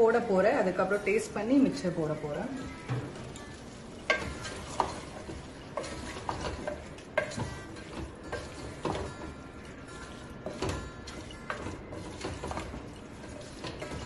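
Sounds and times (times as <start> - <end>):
wooden spatula scraping metal pot: 3.4 - 14.0.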